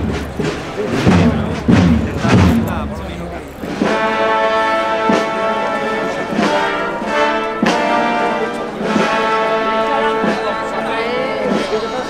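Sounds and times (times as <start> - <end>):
drum strokes: 0.0 - 10.8
brass band playing a march: 0.0 - 12.0.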